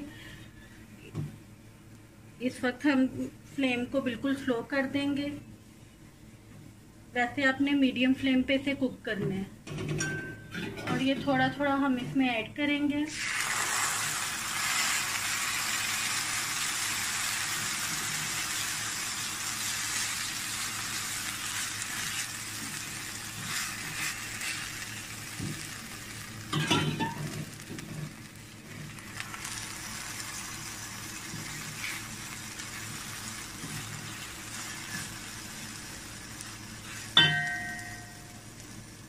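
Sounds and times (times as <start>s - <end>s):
liquid sizzling in hot pan: 13.1s - 39.0s
spatula stirring: 21.5s - 25.0s, 31.1s - 35.3s.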